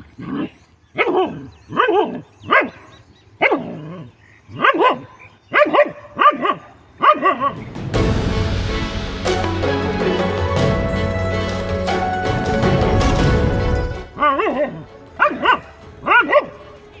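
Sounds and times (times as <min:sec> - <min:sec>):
dog barking: 0:00.3 - 0:07.7, 0:14.2 - 0:17.0
background music: 0:07.1 - 0:17.0.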